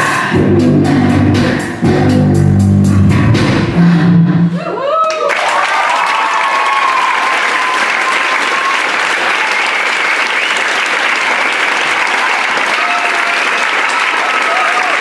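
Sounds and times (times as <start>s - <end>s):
shouted whoops: 4.6s - 9.8s, 12.0s - 15.0s
audience applauding and cheering: 4.9s - 15.0s.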